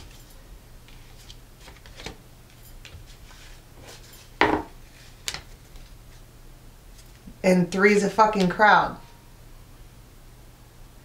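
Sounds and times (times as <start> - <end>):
cards tapping and rustling: 0.9 - 5.9.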